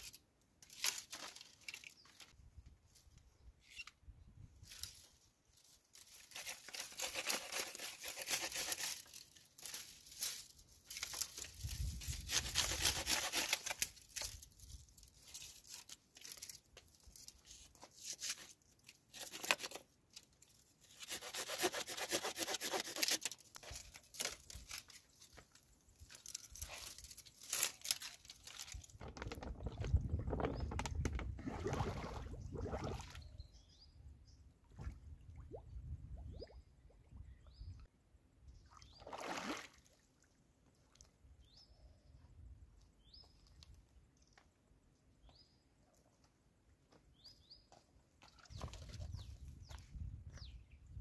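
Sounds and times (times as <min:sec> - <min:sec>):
pruning saw cutting branches: 0:06.2 - 0:09.8, 0:12.1 - 0:14.3, 0:19.1 - 0:19.8, 0:20.9 - 0:24.8.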